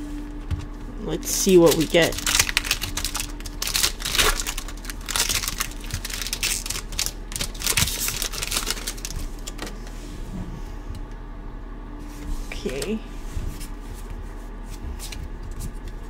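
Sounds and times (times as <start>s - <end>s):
foil wrapper crinkling and tearing: 1.2s - 9.7s
cards being handled: 1.5s - 9.8s.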